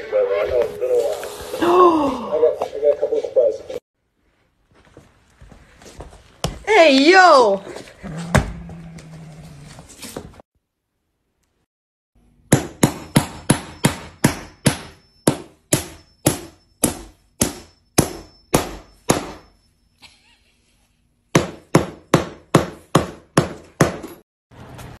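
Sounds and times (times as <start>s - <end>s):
hammer striking plywood: 12.5s - 19.5s, 21.3s - 24.2s.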